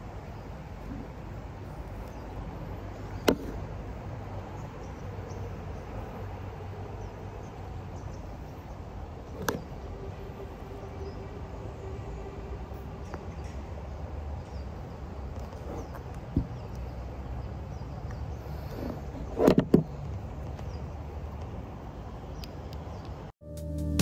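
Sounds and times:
low city rumble: 0.0 - 23.4.

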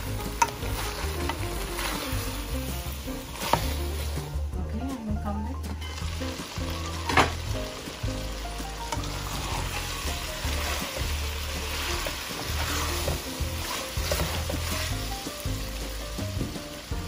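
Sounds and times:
food sizzling in metal pot: 0.0 - 4.6, 5.7 - 17.0
spatula scraping pot: 0.2 - 4.3, 8.9 - 15.1.

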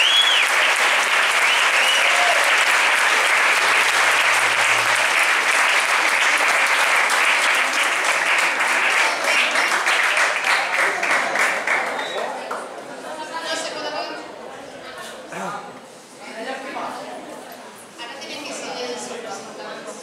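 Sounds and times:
audience applauding: 0.0 - 12.7.

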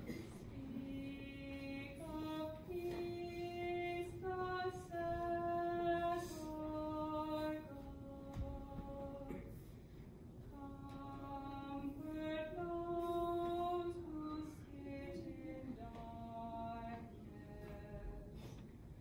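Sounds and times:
person singing a hymn unaccompanied: 0.0 - 18.7.

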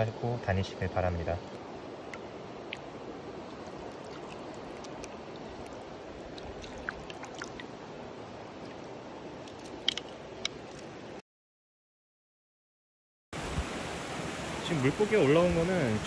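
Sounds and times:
stream running over stones: 0.0 - 11.2, 13.4 - 16.0
net splashing in water: 5.6 - 7.6.

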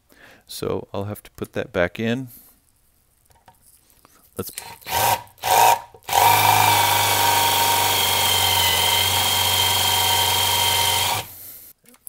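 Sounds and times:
impact driver rattling: 4.6 - 11.4.

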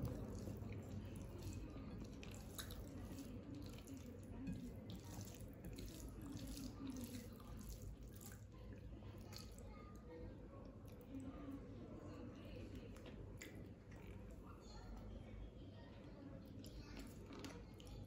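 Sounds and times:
fingers mixing rice wet squishing: 0.0 - 11.7.

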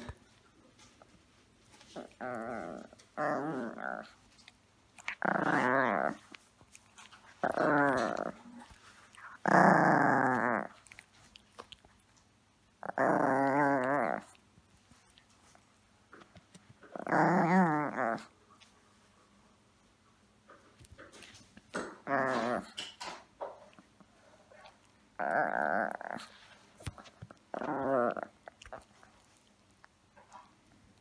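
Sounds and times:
small dog growling: 1.8 - 12.0, 12.8 - 14.4, 16.2 - 18.3, 21.7 - 23.6, 24.2 - 29.5.

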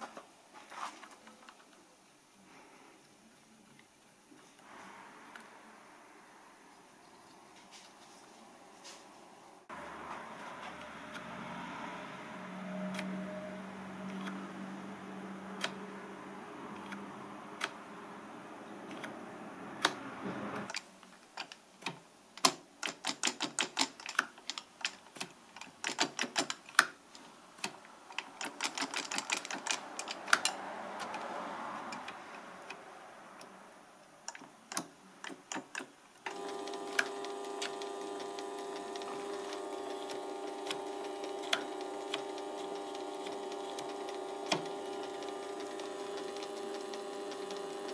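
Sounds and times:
sharp metal clicks and ticks: 20.7 - 26.9, 27.6 - 31.3
steady machine hum: 36.3 - 47.9.

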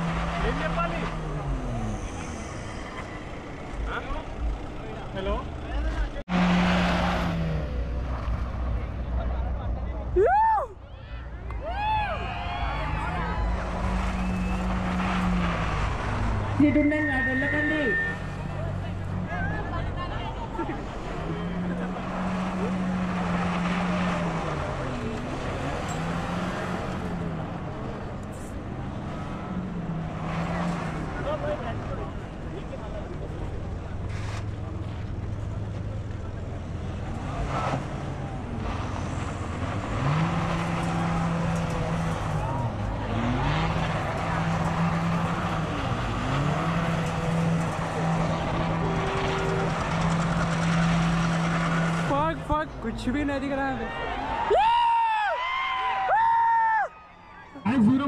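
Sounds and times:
car engine at high revs: 0.0 - 10.0, 12.9 - 53.2
car engine revving high: 6.3 - 8.6, 37.0 - 52.4
tyres spinning on dirt: 11.7 - 56.6.

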